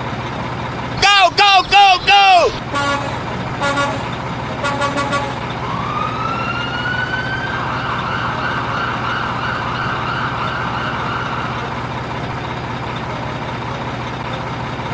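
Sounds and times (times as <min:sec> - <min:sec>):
siren-like warbling wail: 0:01.0 - 0:11.8.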